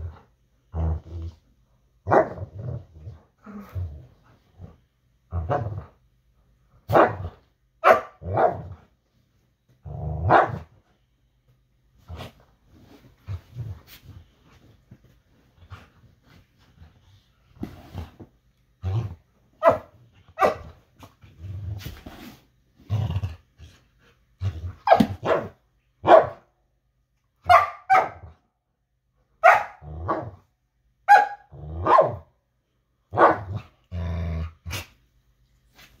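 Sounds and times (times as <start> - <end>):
dogs play-growling: 0.0 - 1.5, 2.3 - 6.0, 12.0 - 19.4, 20.7 - 24.9, 33.6 - 35.0.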